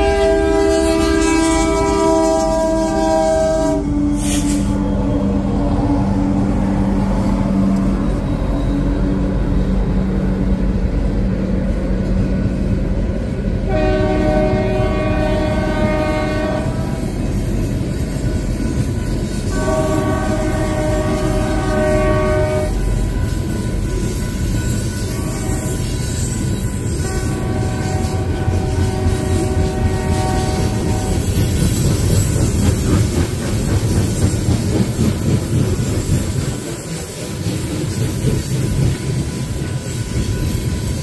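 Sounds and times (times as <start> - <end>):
train horn blasts: 0.0 - 9.1, 13.6 - 17.4, 19.0 - 23.9, 24.9 - 31.6
diesel locomotive engine drone: 0.0 - 41.0
freight cars rumbling and clattering: 25.8 - 41.0.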